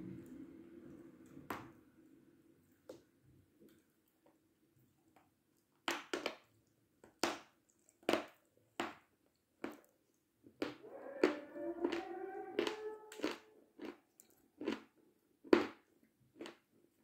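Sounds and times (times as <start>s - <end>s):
chalk being chewed crunching: 10.6s - 16.7s.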